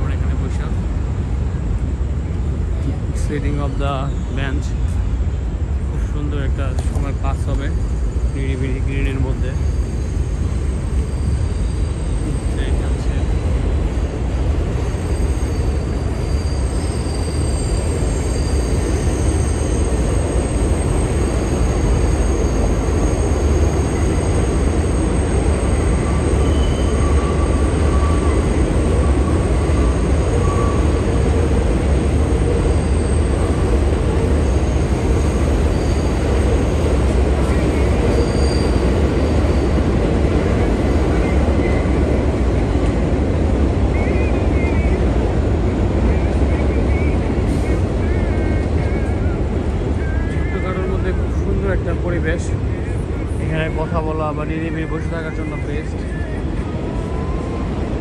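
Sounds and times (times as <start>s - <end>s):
train rumbling on viaduct: 0.0s - 58.0s
wheel squeals: 9.5s - 12.6s, 14.8s - 31.3s, 34.5s - 36.6s, 38.0s - 39.8s.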